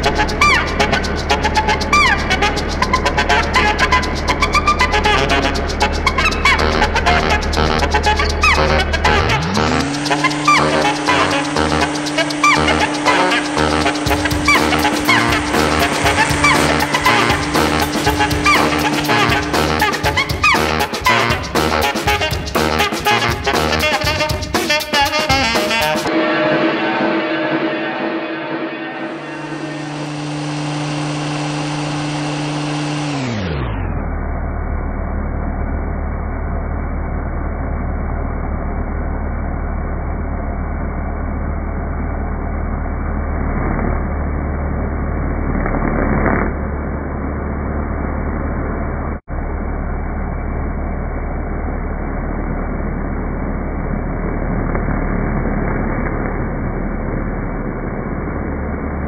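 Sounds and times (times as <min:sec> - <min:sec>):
router cutting wood: 0:08.5 - 0:21.2, 0:29.0 - 0:33.5.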